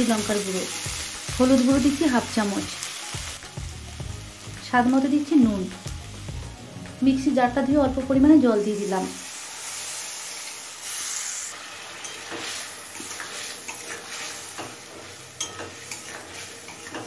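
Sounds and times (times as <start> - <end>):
water sizzling in hot oil: 0.0 - 6.5, 7.6 - 17.0
spatula scraping and clicking on pan: 12.0 - 17.0.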